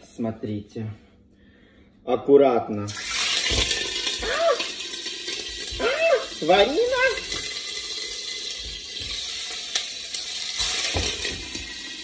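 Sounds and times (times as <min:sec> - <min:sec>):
fish sizzling in a frying pan: 0:03.0 - 0:12.0.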